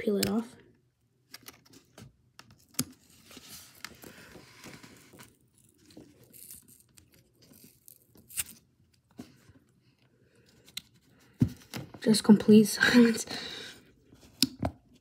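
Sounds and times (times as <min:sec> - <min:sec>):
fingernails peeling grip tape: 0:06.2 - 0:08.6.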